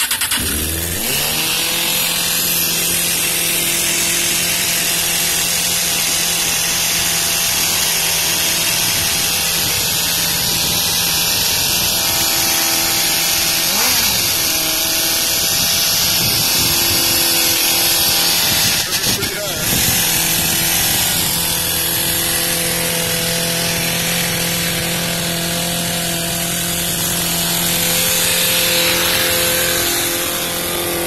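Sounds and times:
motorcycle engine idling: 19.7s - 31.0s.

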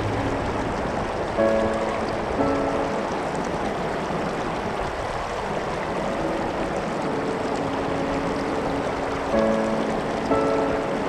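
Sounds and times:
creek rushing over rocks: 0.0s - 11.0s.

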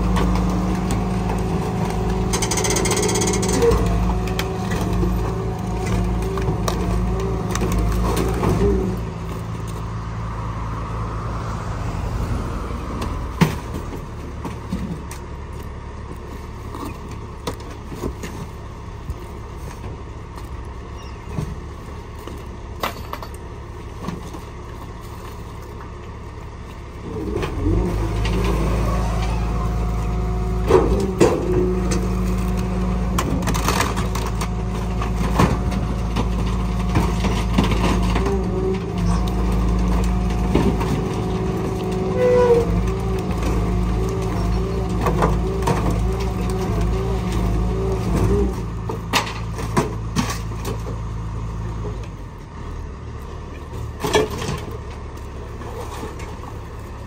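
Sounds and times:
load cracking and crunching: 0.0s - 10.0s, 21.4s - 52.4s
garbage truck engine: 0.0s - 57.0s.

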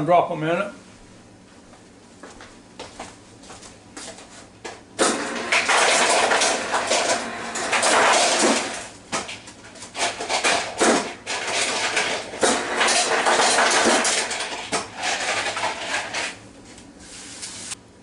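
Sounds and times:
ice rattling in a bowl: 5.3s - 8.9s, 9.9s - 16.4s
tap water running: 11.9s - 16.2s.

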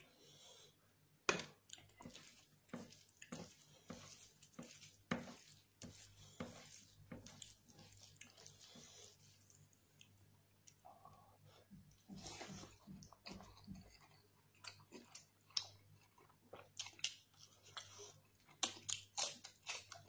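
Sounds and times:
fingers squelching rice: 1.7s - 10.2s.

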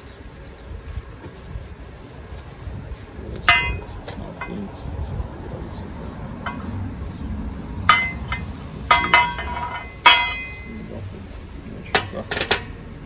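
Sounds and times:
steel pieces clinking: 7.9s - 10.7s.

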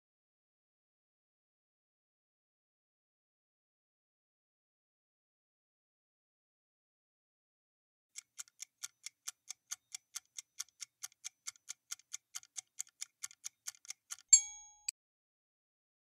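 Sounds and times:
countdown timer ticking: 13.9s - 14.9s
bright ding: 14.3s - 14.9s.

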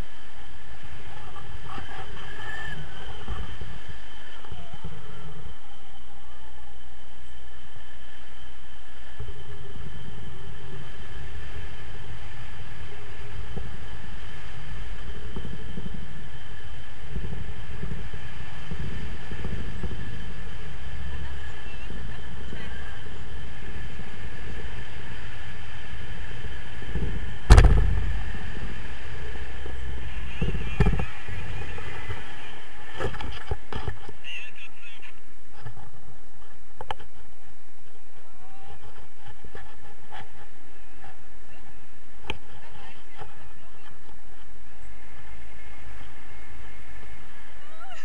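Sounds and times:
wind rushing over microphone: 0.0s - 48.0s
sharp knocks: 27.5s - 28.3s.

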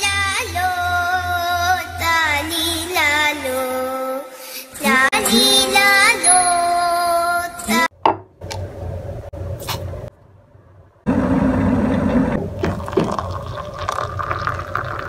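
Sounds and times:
background music with singing: 0.0s - 7.9s
electric kettle heating water: 11.1s - 15.0s.

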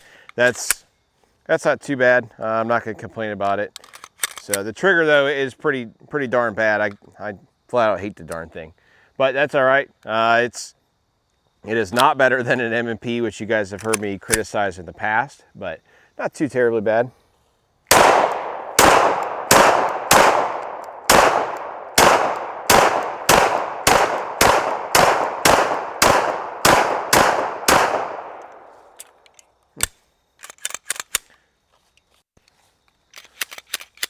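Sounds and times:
pistol shots: 17.9s - 28.6s.

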